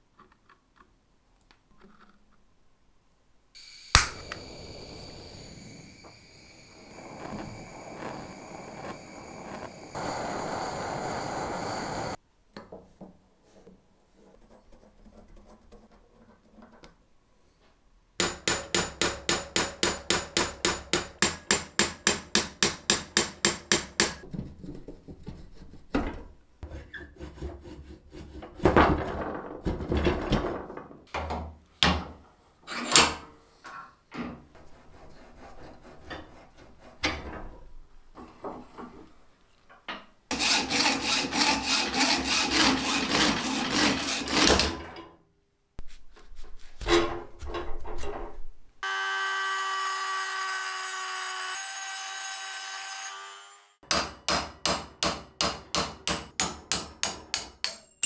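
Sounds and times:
blowtorch hissing: 0:03.6 - 0:12.2.

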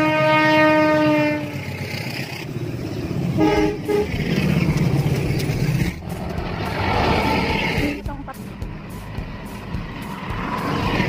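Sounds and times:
locomotive air horn: 0:00.0 - 0:01.6, 0:03.4 - 0:04.1
train engine running: 0:00.0 - 0:11.0.

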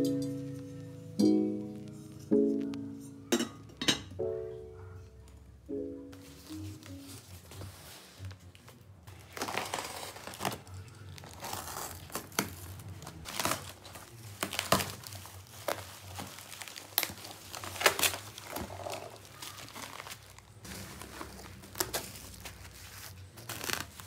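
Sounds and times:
bubble wrap rustling and crackling: 0:06.2 - 0:24.0
packing tape ripping: 0:09.2 - 0:24.0
cardboard box tearing open: 0:09.3 - 0:10.6, 0:13.3 - 0:22.5.

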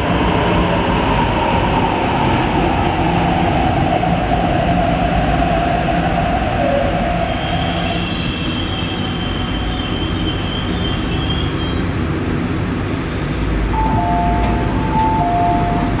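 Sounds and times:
low train rumble: 0:00.0 - 0:16.0
train brakes squealing: 0:07.2 - 0:11.9
two-note chime: 0:13.8 - 0:16.0.

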